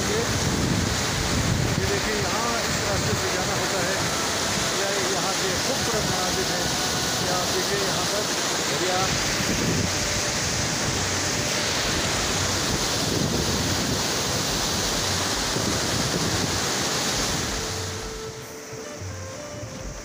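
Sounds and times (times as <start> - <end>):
river rushing over rocks: 0.0 - 20.0.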